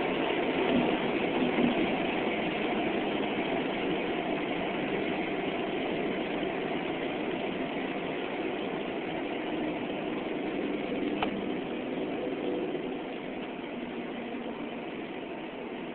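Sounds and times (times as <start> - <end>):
car engine drone with road noise: 0.0 - 15.9.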